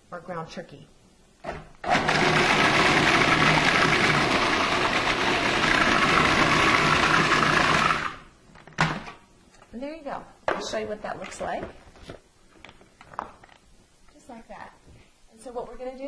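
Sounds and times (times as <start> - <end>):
food processor running: 1.5 - 8.3.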